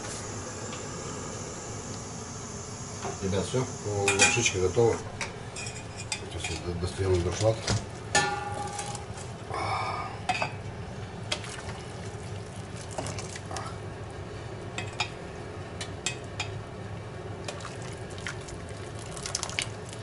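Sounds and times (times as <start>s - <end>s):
steady background hiss: 0.0s - 8.5s.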